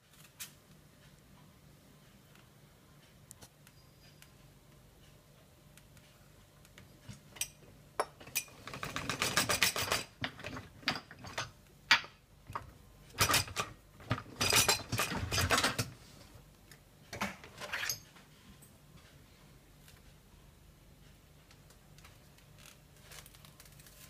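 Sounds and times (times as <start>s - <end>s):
dishes and utensils clattering: 7.0s - 16.0s
dishwasher racks rolling on rails: 13.1s - 16.0s.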